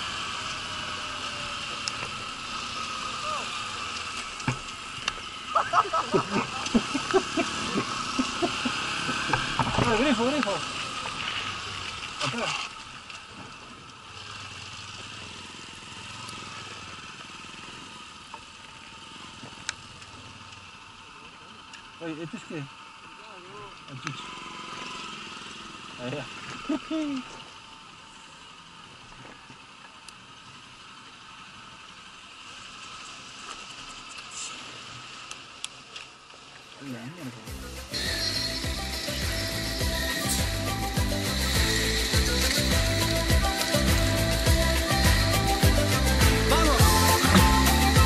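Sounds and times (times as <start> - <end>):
motorcycle engines idling: 0.0 - 48.0
faint clicks: 19.5 - 20.7.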